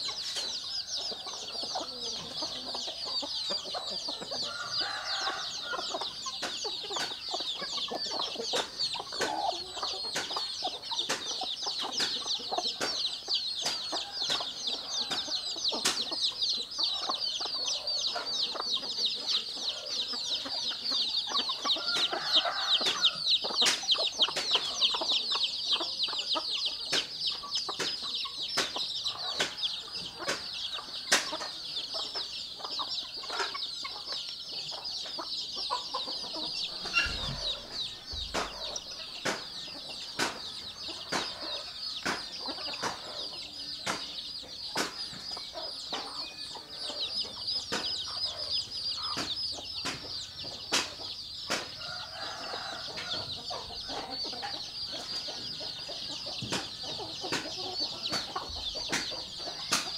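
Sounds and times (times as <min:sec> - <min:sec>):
chicks peeping: 0:00.0 - 0:59.9
hens clucking: 0:00.0 - 0:59.9.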